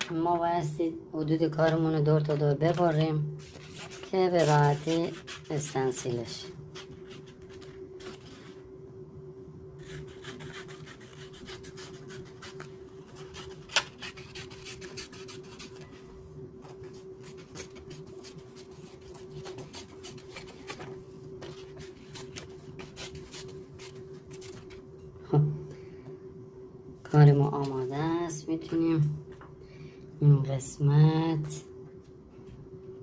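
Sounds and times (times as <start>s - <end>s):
faint steady hum: 0.0s - 33.0s
paper rustling and crinkling: 2.6s - 5.5s, 16.6s - 24.8s.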